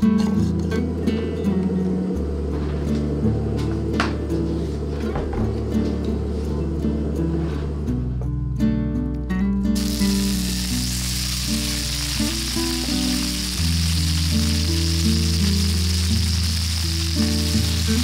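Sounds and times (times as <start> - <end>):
tofu sizzling in hot oil: 9.8 - 18.0.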